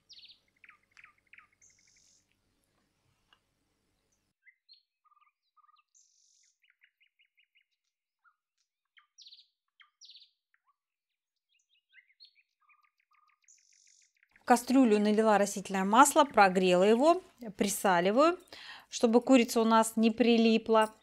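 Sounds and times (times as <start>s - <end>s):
faint birdsong: 0.0s - 21.0s.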